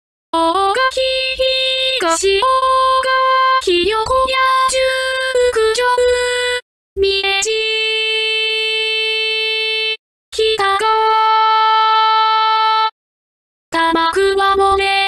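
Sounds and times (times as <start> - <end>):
synthesized singing voice: 0.4 - 8.0, 10.4 - 12.9, 13.7 - 15.0.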